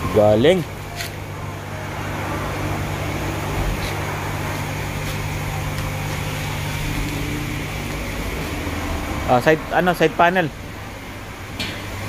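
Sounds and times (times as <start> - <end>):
low pump hum: 0.0 - 12.0
brush scrubbing soapy bodywork: 3.6 - 7.3.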